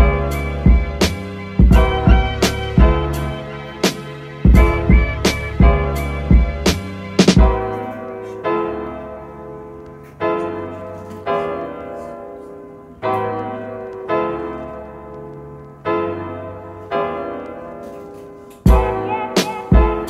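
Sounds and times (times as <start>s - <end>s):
low bass: 0.0s - 3.4s, 4.6s - 7.5s
keyboard playing held chords: 0.0s - 20.0s.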